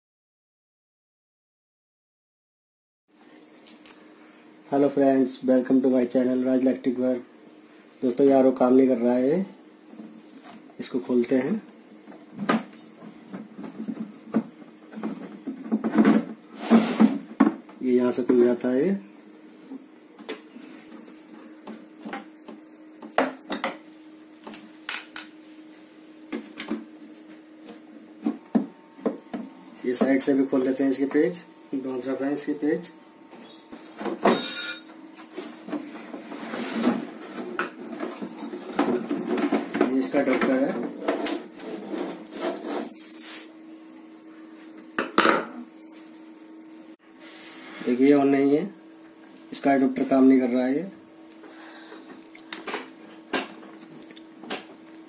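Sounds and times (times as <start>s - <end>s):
faint steady hum: 3.2s - 55.0s
plastic cover rubbing and scraping: 41.1s - 43.2s.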